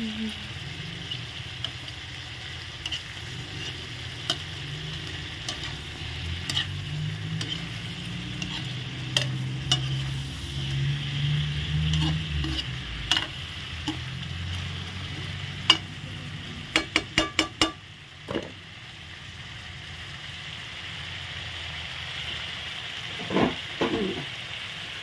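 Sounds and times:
shrimp sizzling in a wok: 0.0 - 25.0
metal spoon scraping and clinking: 2.7 - 10.8, 11.6 - 14.1.

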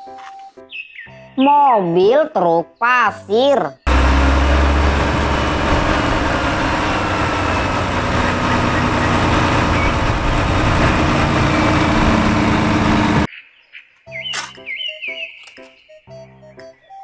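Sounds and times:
hydraulic ram raising tipper: 3.9 - 13.3
truck diesel engine running: 3.9 - 13.3.

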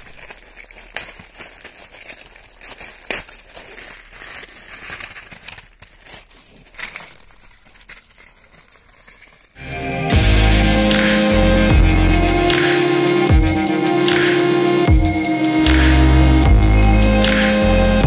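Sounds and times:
paper and plastic wrapping crinkling: 0.0 - 9.6
sharp crackles: 0.0 - 9.6.

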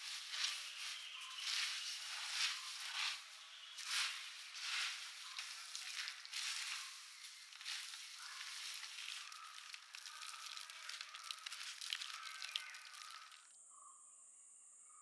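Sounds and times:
crisp snack being tossed: 3.9 - 13.5.

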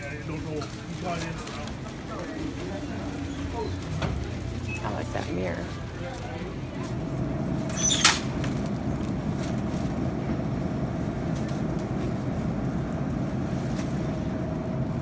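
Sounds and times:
shopping cart rattling: 0.0 - 10.2.

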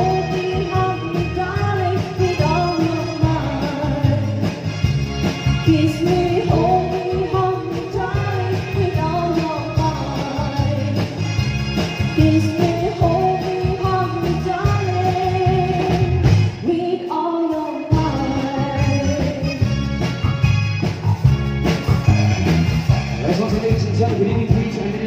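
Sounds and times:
woman singing: 0.0 - 4.7, 5.6 - 11.2, 12.0 - 19.8
electric bass guitar: 0.0 - 16.8, 17.9 - 25.0
keyboard: 0.0 - 25.0.

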